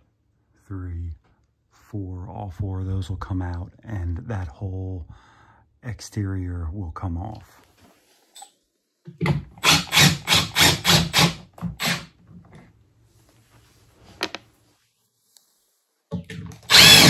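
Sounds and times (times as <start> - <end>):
cordless drill backing out screws: 16.7 - 17.0.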